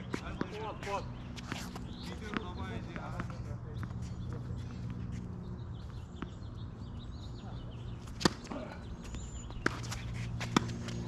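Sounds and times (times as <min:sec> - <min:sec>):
tennis ball hit with racquets: 0:08.1 - 0:08.5, 0:09.6 - 0:11.0.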